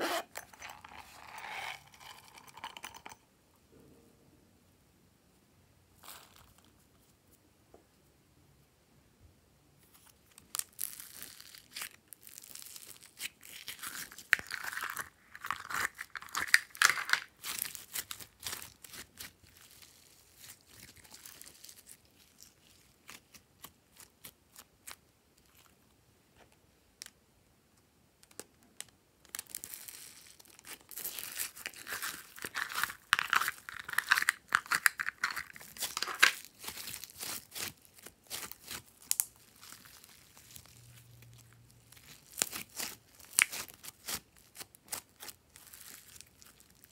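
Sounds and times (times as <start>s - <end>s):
foam slime crackling and popping: 29.3s - 46.9s.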